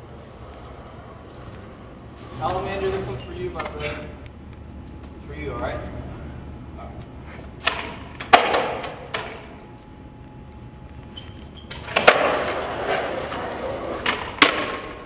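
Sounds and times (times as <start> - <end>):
skateboard wheels rolling on concrete: 0.0 - 4.2, 7.3 - 9.6, 11.0 - 15.0
loud skateboard hit: 7.6 - 9.4, 11.9 - 15.0
skateboard clacks: 7.6 - 9.4, 11.8 - 15.0.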